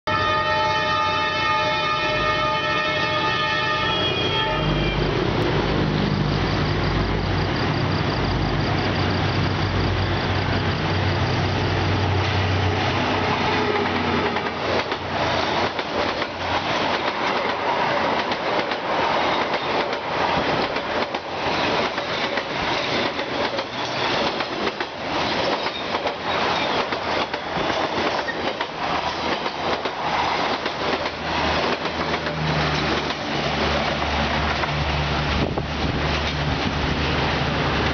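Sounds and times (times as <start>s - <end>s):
train wheels clattering over rail joints: 13.4s - 34.8s.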